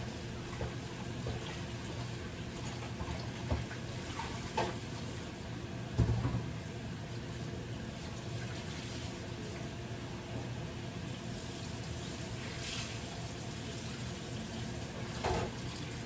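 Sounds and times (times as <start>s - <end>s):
tap running at sink: 0.0s - 5.2s, 5.9s - 6.6s, 14.0s - 16.0s
beef frying in a skillet: 11.0s - 16.0s.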